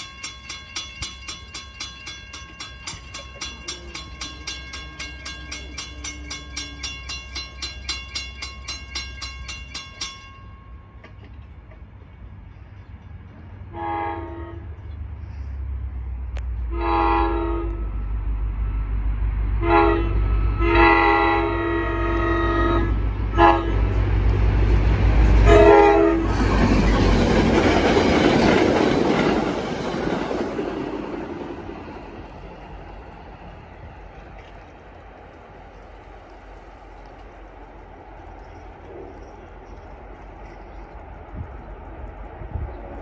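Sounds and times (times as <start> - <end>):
train wheel and rail noise: 0.0 - 43.0
locomotive air horn blasts: 13.7 - 14.8, 16.7 - 18.0, 19.6 - 23.9, 25.4 - 26.4.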